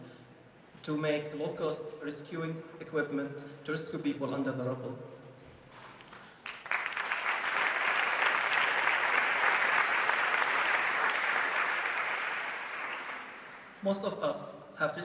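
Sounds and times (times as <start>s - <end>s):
audience applauding: 6.2s - 13.8s.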